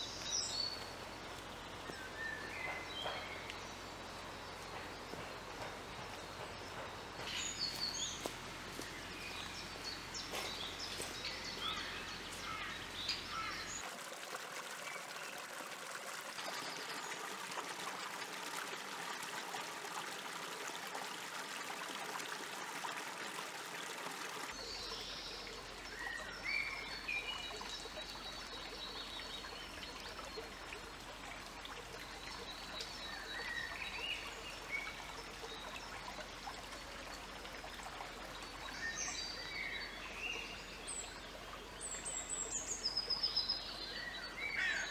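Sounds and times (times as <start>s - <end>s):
birds chirping: 0.0s - 13.9s
stream trickling over rocks: 0.0s - 44.9s.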